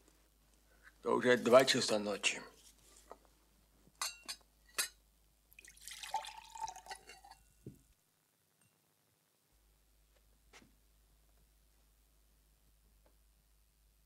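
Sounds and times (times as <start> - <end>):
glass clinks: 4.0 - 5.0, 6.4 - 7.6
liquid pouring with ringing glass: 5.6 - 7.6.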